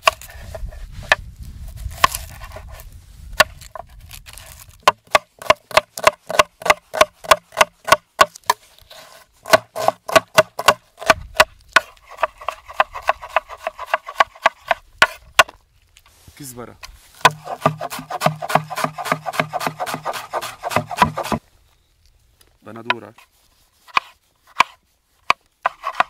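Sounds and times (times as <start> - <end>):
knife chopping on wooden board: 4.8 - 8.6, 9.4 - 15.5, 17.2 - 21.4, 23.9 - 26.0.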